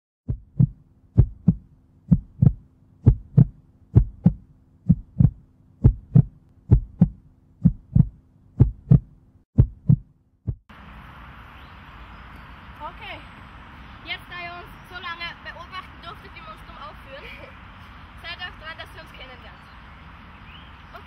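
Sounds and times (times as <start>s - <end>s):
heartbeat thumps: 0.2s - 10.7s
outdoor background noise: 0.3s - 21.0s.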